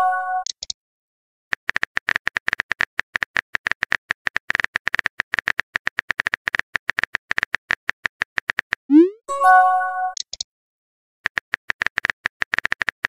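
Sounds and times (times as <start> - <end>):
message send swoop: 8.9 - 9.8
phone keyboard typing clicks: 11.3 - 13.0.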